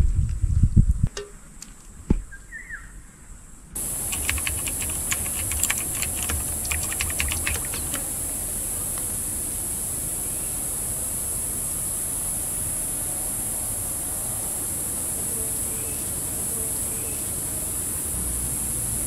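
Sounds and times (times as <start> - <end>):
steady high hiss: 3.8 - 19.0
wooden spoon clicking and tapping: 4.1 - 8.0.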